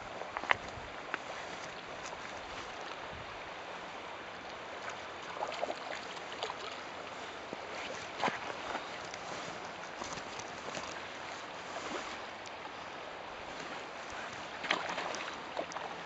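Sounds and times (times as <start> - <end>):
river rushing over stones: 0.0 - 16.0
water splashes: 0.2 - 16.0.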